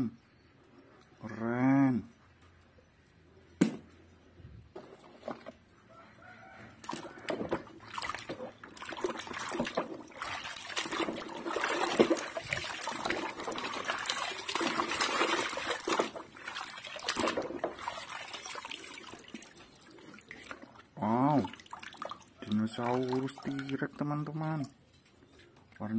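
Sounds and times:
water sloshing in a basin: 0:04.7 - 0:25.9
water dripping: 0:06.6 - 0:25.9.

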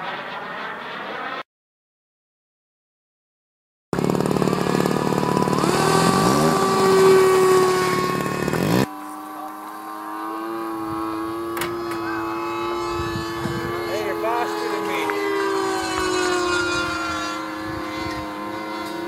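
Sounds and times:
model jet motor whining: 0:04.0 - 0:19.0.

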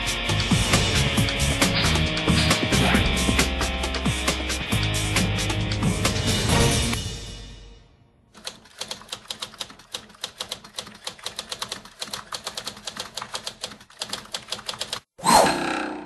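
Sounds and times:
typewriter keys clacking: 0:08.4 - 0:15.1.

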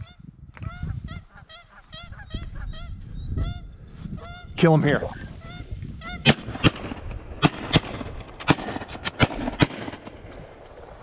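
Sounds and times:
shotgun shots: 0:06.2 - 0:10.6.

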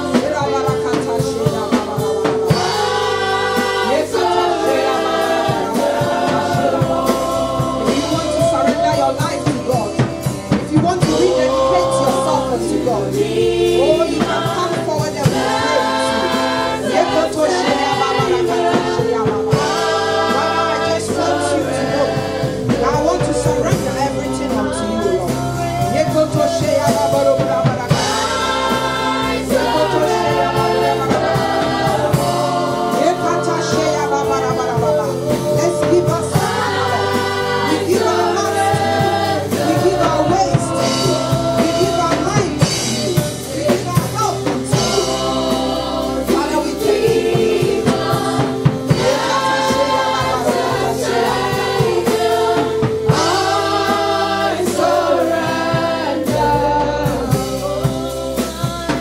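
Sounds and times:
drum kit: 0:00.0 - 0:59.0
gospel singers: 0:00.0 - 0:59.0
keyboard chords: 0:00.0 - 0:59.0
woman singing lead: 0:55.7 - 0:59.0.

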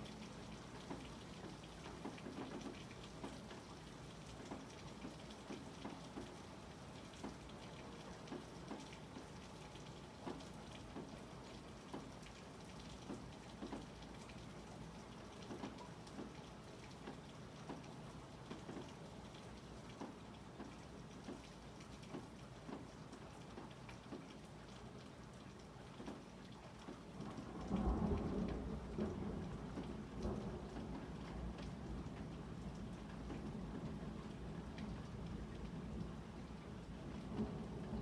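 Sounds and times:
raindrops tapping: 0:00.1 - 0:06.4, 0:07.0 - 0:24.4, 0:25.5 - 0:38.0
rain hissing: 0:33.2 - 0:38.0.

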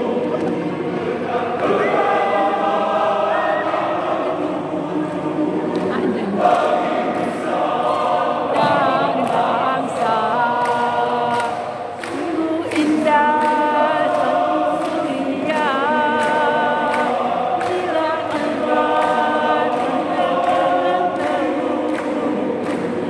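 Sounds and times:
choir singing: 0:00.0 - 0:23.0.

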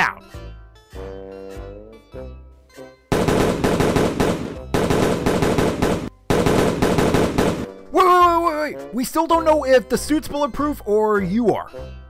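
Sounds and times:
rapid handgun fire: 0:03.1 - 0:07.8.

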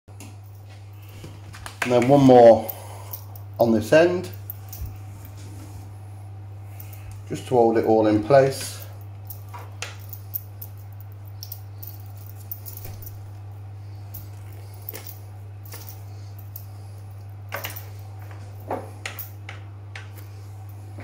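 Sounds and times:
steady low hum: 0:00.1 - 0:21.0
twine handling clicks and rustles: 0:14.1 - 0:21.0.

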